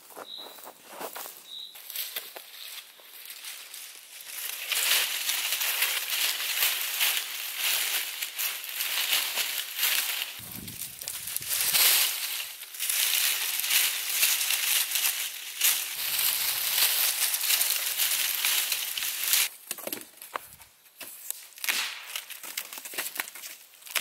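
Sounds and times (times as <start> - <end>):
dry leaves crackling and rustling: 0.0 - 19.6, 20.3 - 24.0
dead branch snapping: 21.3 - 23.3.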